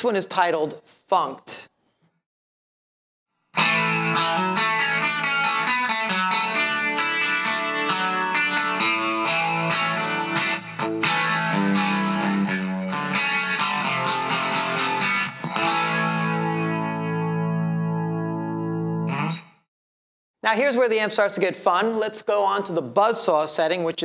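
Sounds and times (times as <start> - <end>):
electric guitar funk chords: 3.6 - 19.6.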